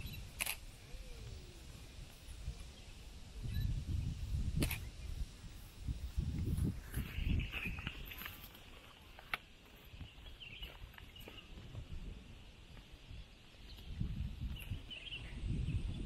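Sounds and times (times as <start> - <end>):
wind buffeting microphone: 0.0 - 8.6, 9.8 - 16.0
sharp click: 4.6 - 4.9.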